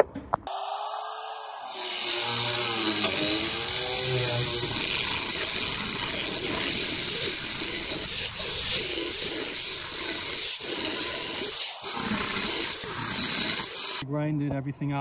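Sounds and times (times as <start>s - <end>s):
power tool grinding wood: 0.5s - 14.0s.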